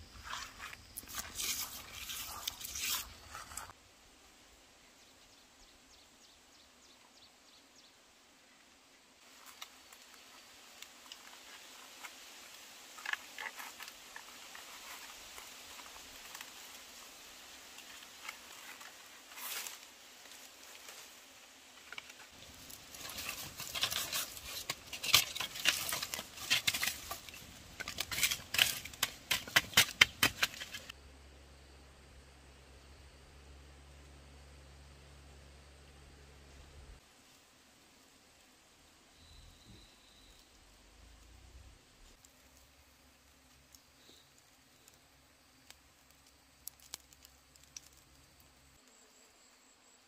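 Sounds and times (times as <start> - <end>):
campfire crackling and popping: 21.9 - 31.0, 45.6 - 48.5.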